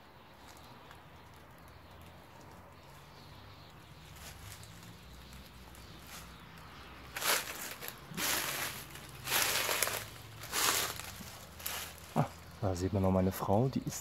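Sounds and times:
faint traffic hum: 0:00.0 - 0:14.0
loud scuffing noise: 0:07.1 - 0:12.1.

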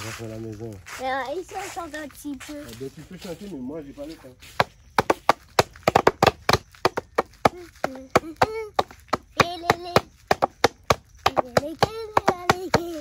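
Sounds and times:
child singing: 0:07.5 - 0:10.2, 0:11.3 - 0:13.0.

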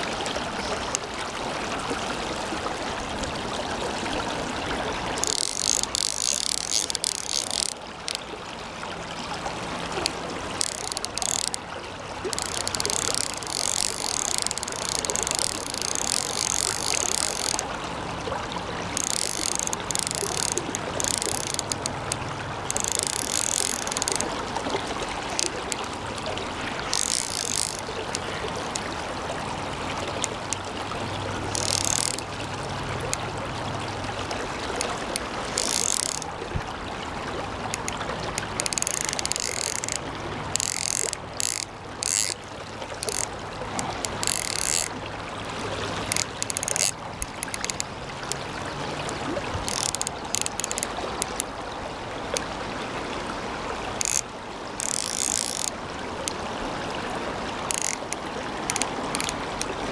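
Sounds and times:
river running water: 0:00.0 - 0:59.9
fishing reel ratchet clicking: 0:05.0 - 0:08.3, 0:09.8 - 0:17.7, 0:18.9 - 0:25.9, 0:26.8 - 0:29.0, 0:31.4 - 0:32.3, 0:34.7 - 0:36.4, 0:37.7 - 0:42.4, 0:43.0 - 0:45.0, 0:46.0 - 0:51.5, 0:54.0 - 0:56.4, 0:57.6 - 0:59.8.

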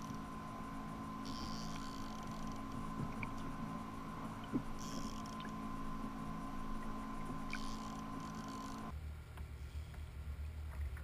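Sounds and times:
faint ticks: 0:00.0 - 0:00.3, 0:01.2 - 0:03.6, 0:04.2 - 0:05.6, 0:06.8 - 0:10.1
high whine: 0:00.0 - 0:09.0
electrical hum: 0:00.0 - 0:11.0.

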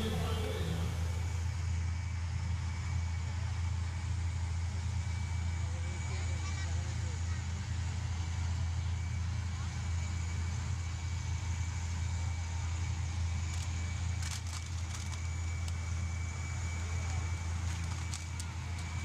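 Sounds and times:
steady low hum: 0:00.0 - 0:01.5.

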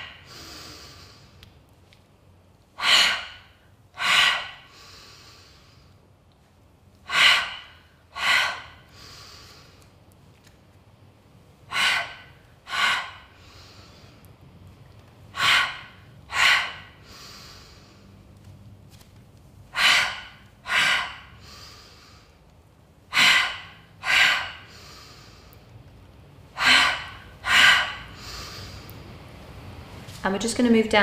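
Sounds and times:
woman breathing forcefully: 0:00.0 - 0:01.4, 0:02.7 - 0:06.2, 0:07.0 - 0:10.1, 0:11.5 - 0:14.5, 0:15.2 - 0:18.3, 0:19.6 - 0:25.8, 0:26.4 - 0:29.3.

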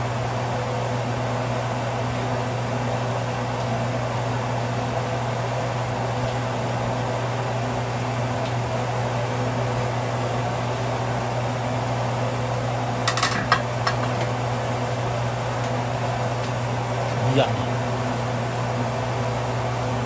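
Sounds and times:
steady low fan hum: 0:00.0 - 0:20.0
metal lid clinking: 0:13.1 - 0:14.0.

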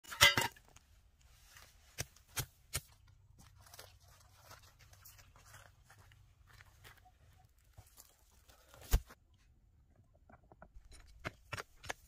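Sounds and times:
crunching on grass and gravel: 0:01.3 - 0:09.2
digging tool striking stony ground: 0:01.9 - 0:03.0, 0:10.8 - 0:12.0.

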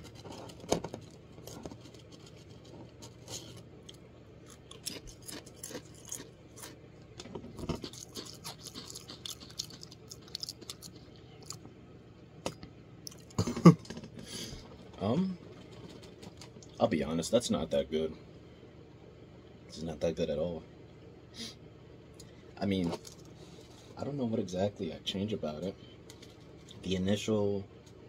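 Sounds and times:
person chewing crisps: 0:00.0 - 0:11.7, 0:22.2 - 0:23.8.

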